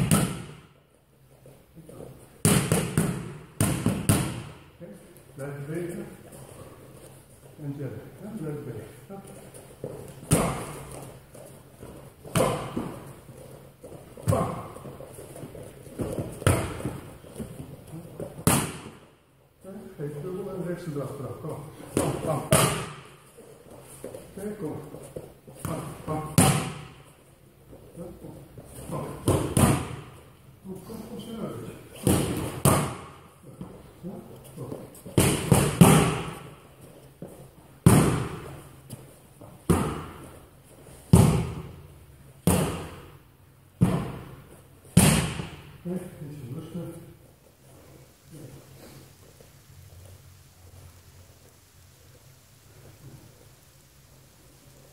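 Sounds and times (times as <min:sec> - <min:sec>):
strikes smacking pads: 0:00.0 - 0:00.6, 0:02.4 - 0:04.6, 0:18.4 - 0:19.0, 0:22.0 - 0:23.1, 0:26.4 - 0:27.0, 0:29.2 - 0:30.1, 0:32.0 - 0:33.2, 0:35.2 - 0:36.5, 0:37.8 - 0:38.5, 0:39.7 - 0:40.2, 0:41.1 - 0:41.7, 0:42.4 - 0:43.0, 0:45.0 - 0:45.7.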